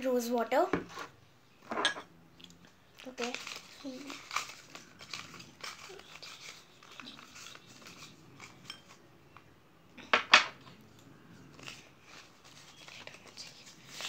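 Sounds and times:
sharp paper crackles: 3.0s - 8.6s, 11.5s - 14.0s.

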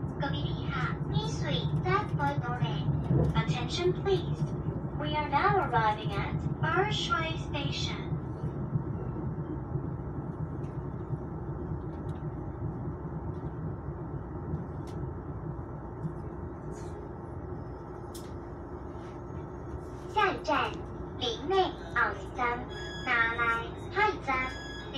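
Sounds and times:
train rumbling on rails: 0.0s - 24.9s
faint clicks and knocks: 8.0s - 17.0s.

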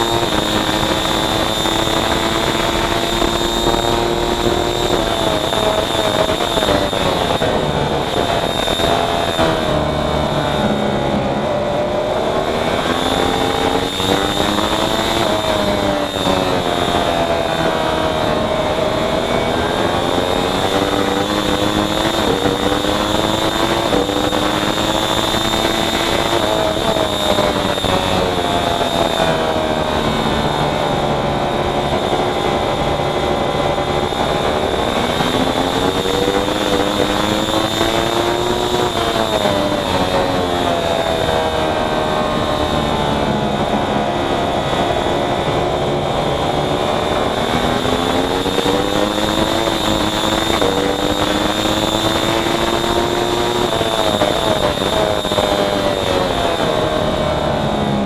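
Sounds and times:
racing motorcycle engine: 0.0s - 58.0s
wind noise: 0.0s - 58.0s.

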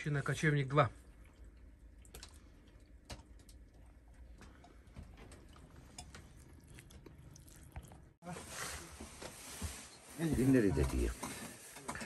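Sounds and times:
faint clicks and ticks: 1.2s - 7.1s.

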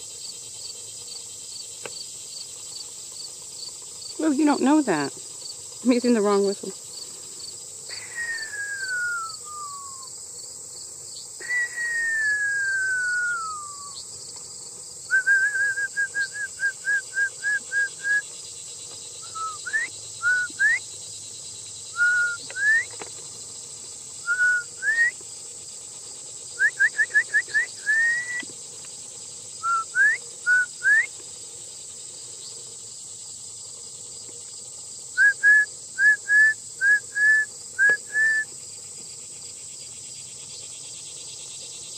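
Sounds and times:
crickets chirping: 0.0s - 41.9s
shepherd's whistle: 8.2s - 10.1s, 11.4s - 14.0s, 15.1s - 18.2s, 19.2s - 20.8s, 22.0s - 22.9s, 24.3s - 25.2s, 26.6s - 28.5s, 29.6s - 31.1s, 35.2s - 38.5s.

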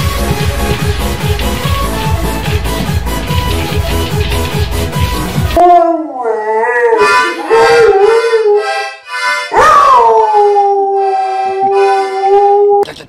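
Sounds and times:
dog howling: 5.6s - 8.7s, 9.5s - 12.8s
toy accordion notes: 7.0s - 9.7s, 10.9s - 12.4s.

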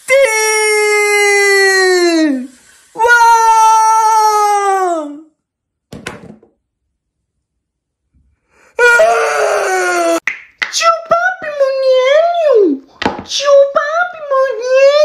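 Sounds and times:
man wailing cry: 8.8s - 10.2s.

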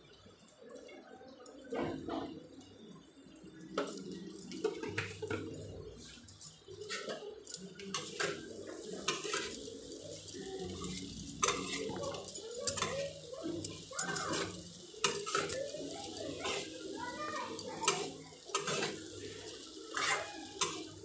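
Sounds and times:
utensil scraping metal pan: 7.9s - 16.9s, 17.5s - 21.0s.

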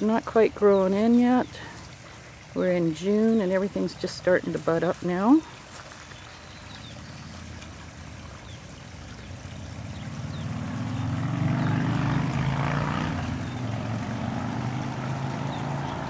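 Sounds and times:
engine droning: 6.8s - 16.0s.

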